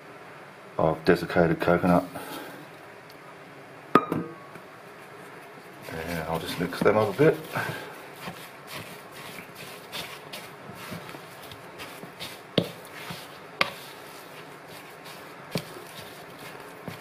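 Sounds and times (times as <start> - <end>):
spoon knocking against bowl: 4.0 - 4.3
spoon scraping in bowl: 5.8 - 17.0.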